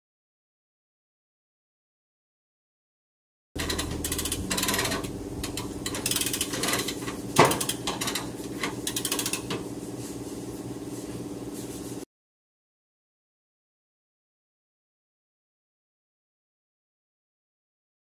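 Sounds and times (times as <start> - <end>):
metal clicks and clanks: 3.6 - 9.6
steady mechanical hum: 3.6 - 12.1.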